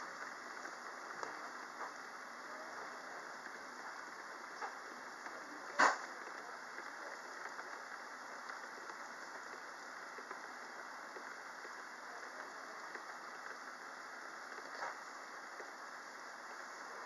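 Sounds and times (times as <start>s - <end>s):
rain hissing: 0.0s - 17.0s
ticks of raindrops: 0.0s - 17.0s.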